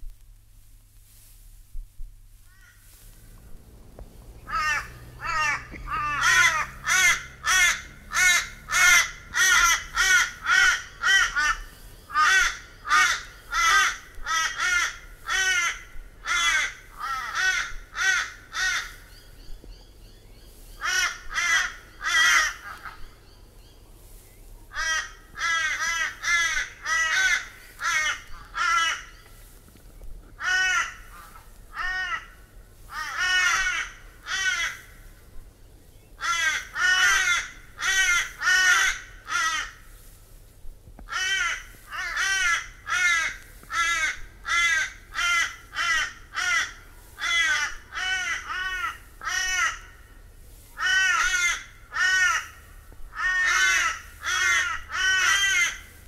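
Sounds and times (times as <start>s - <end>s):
crow cawing: 2.5s - 2.9s, 4.5s - 19.0s, 20.8s - 23.1s, 24.7s - 29.1s, 30.4s - 35.1s, 36.2s - 39.8s, 41.1s - 50.0s, 50.8s - 55.9s.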